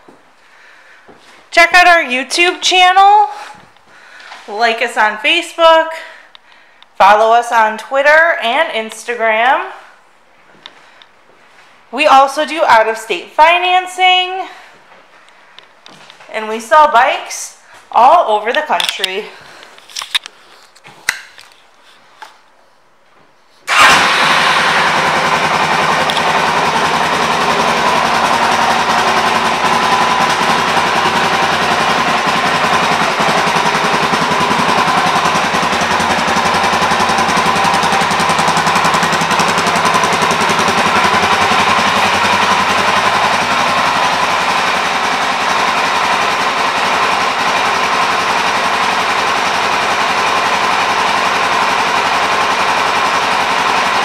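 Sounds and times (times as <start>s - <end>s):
motorcycle engine starting and idling: 23.7s - 54.0s.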